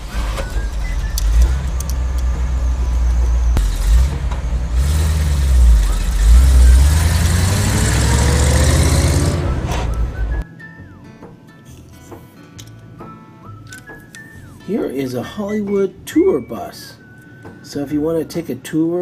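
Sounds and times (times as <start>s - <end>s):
truck engine rumbling and revving: 0.0s - 10.4s.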